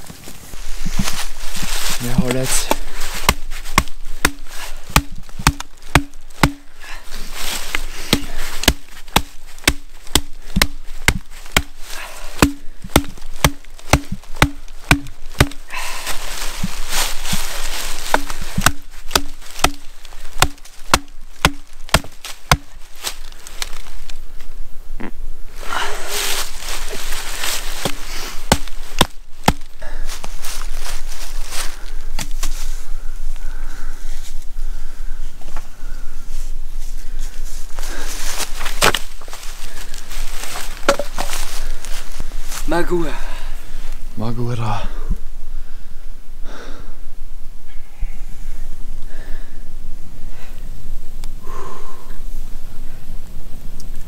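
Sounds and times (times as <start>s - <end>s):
axe chopping firewood: 2.2s - 6.8s, 7.7s - 15.8s, 18.0s - 22.8s, 27.8s - 29.8s, 38.6s - 39.1s, 40.8s - 41.3s.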